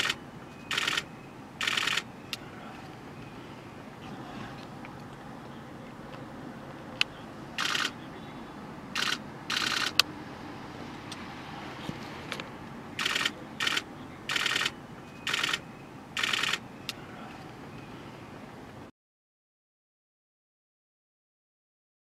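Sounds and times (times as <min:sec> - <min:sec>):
camera shutter single clicks: 0:00.0 - 0:02.0, 0:07.6 - 0:07.9, 0:09.0 - 0:10.1, 0:13.0 - 0:15.6, 0:16.2 - 0:16.6
camera shutter bursts: 0:00.0 - 0:02.1, 0:07.6 - 0:08.0, 0:09.0 - 0:10.0, 0:13.0 - 0:15.6, 0:16.2 - 0:16.6.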